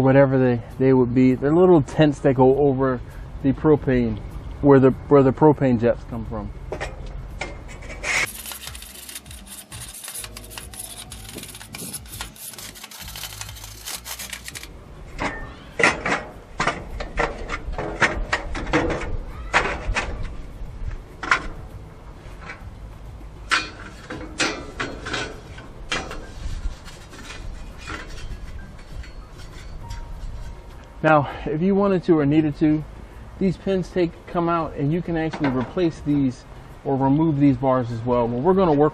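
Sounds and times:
metal scraper rasping on grill bars: 0:07.6 - 0:14.7, 0:23.5 - 0:30.7
metal bars clanking: 0:23.4 - 0:30.7.

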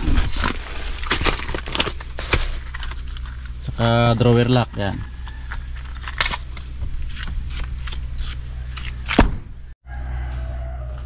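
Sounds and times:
packaging rustles and knocks: 0:00.0 - 0:03.4.

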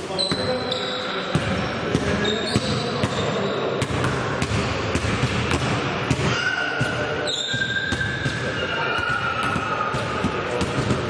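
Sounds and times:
basketball bouncing on court: 0:01.3 - 0:11.0
high squeaking: 0:07.2 - 0:09.5.

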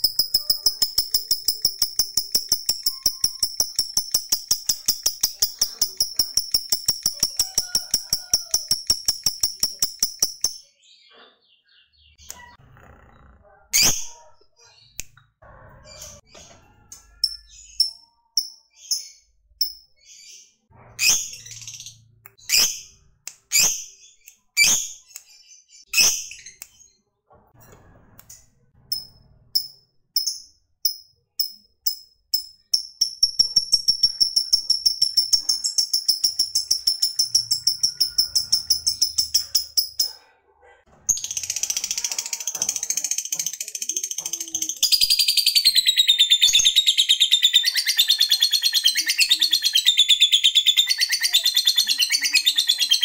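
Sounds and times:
bird fast chattering trill: 0:00.0 - 0:10.6, 0:32.4 - 0:40.2, 0:41.1 - 0:53.0
bird high chirps: 0:00.0 - 0:12.6, 0:13.8 - 0:27.0, 0:28.9 - 0:40.2, 0:41.1 - 0:53.0.

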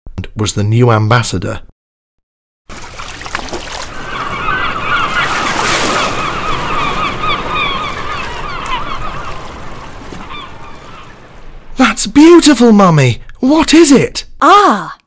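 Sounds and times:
flock of birds honking: 0:03.9 - 0:11.5.

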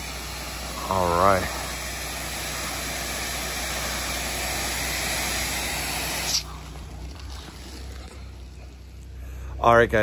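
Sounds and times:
spray cutting off click: 0:00.0 - 0:06.6
pressure washer spraying hiss: 0:00.0 - 0:07.6
machine humming: 0:00.0 - 0:10.0.

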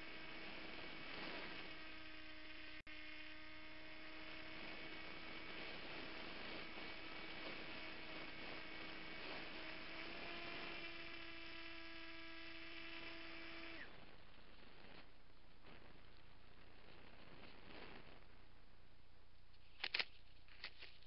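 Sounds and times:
model aircraft motor whine: 0:00.0 - 0:15.1.

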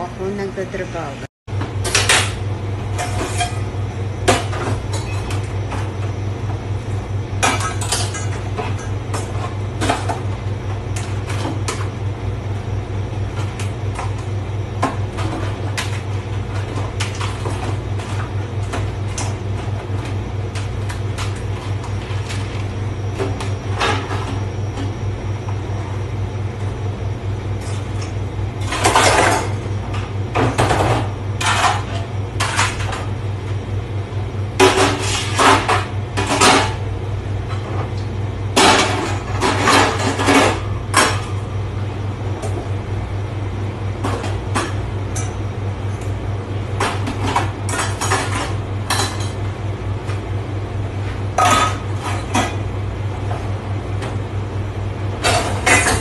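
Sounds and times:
low machine hum: 0:00.0 - 0:56.0
dishes and pans clattering: 0:51.4 - 0:52.6, 0:55.2 - 0:56.0.

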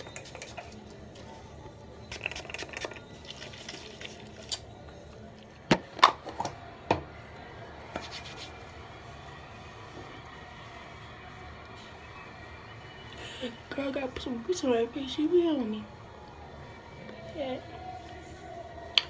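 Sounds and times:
bottle handling clicks and rustles: 0:00.0 - 0:00.9, 0:02.1 - 0:04.6.

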